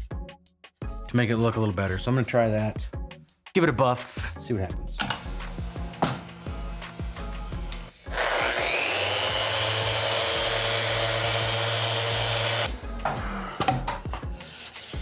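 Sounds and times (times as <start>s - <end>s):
orbital sander running: 5.3s - 12.7s.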